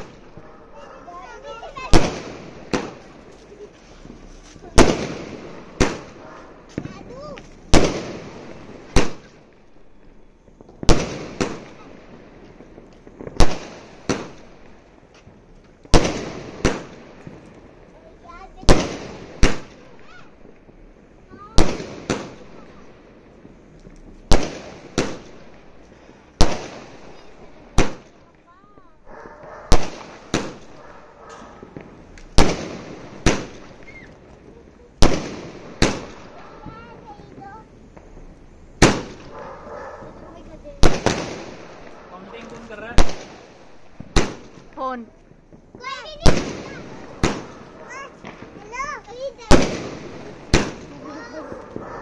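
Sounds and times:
firework bangs: 0:00.0 - 0:52.0
shells bursting overhead: 0:00.0 - 0:52.0
small firework pop: 0:23.4 - 0:25.4, 0:29.2 - 0:39.4, 0:40.8 - 0:48.7.

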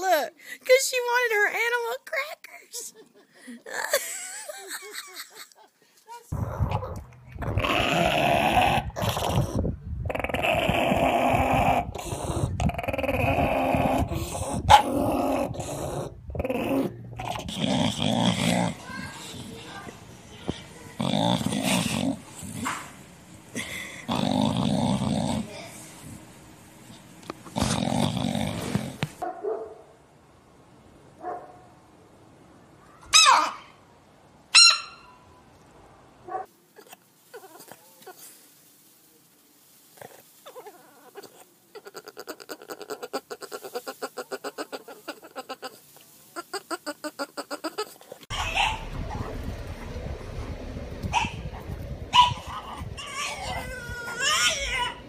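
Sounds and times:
dog growling: 0:06.3 - 0:19.6, 0:20.8 - 0:23.0, 0:23.6 - 0:26.2, 0:27.4 - 0:29.1, 0:47.1 - 0:55.0
dog whining: 0:47.4 - 0:49.4, 0:52.1 - 0:55.0.

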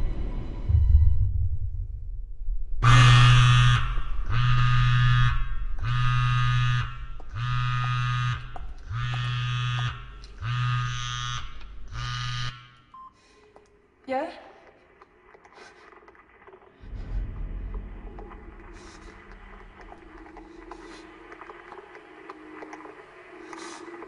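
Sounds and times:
phone vibrating on hard surface: 0:03.4 - 0:12.8.

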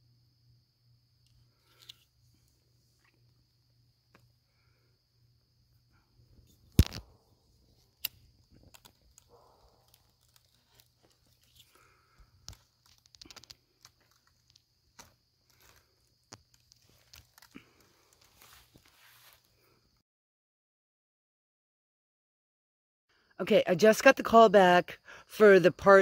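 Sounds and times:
paper burning with crackles: 0:06.4 - 0:19.6.

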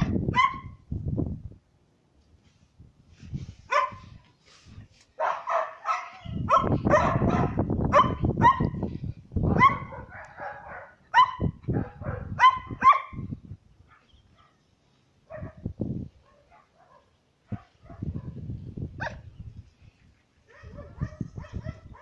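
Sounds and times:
young dog barking and yipping: 0:00.0 - 0:00.8, 0:03.7 - 0:04.2, 0:05.1 - 0:14.6, 0:15.3 - 0:19.4, 0:20.4 - 0:22.0.

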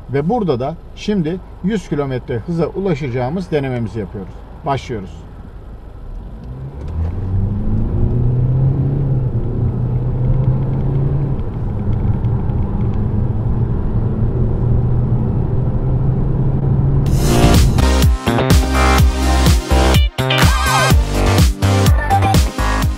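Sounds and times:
road rumble: 0:00.0 - 0:22.9
diesel engine accelerating: 0:05.2 - 0:22.9.

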